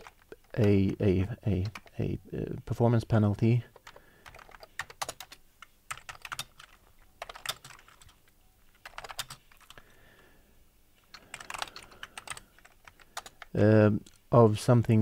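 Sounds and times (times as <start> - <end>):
typing on computer keyboard: 0.0 - 2.0, 3.7 - 9.8, 11.1 - 14.2.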